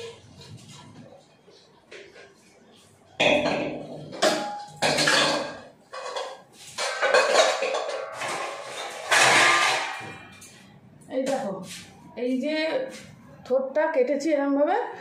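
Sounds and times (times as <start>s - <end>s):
metal pots and utensils clanking: 3.2s - 10.6s.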